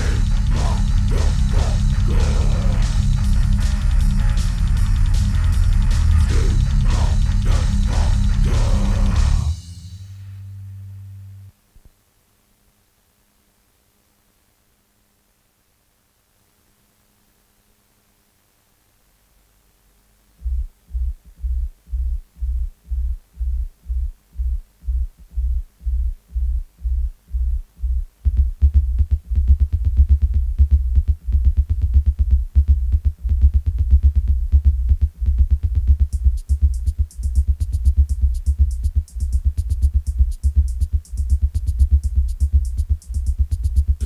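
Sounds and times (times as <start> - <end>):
deep bass pulse: 0.0 - 9.6, 20.4 - 44.0
heavy electronic beat: 0.0 - 9.9, 20.4 - 44.0
hi-hat ticks: 20.4 - 44.0.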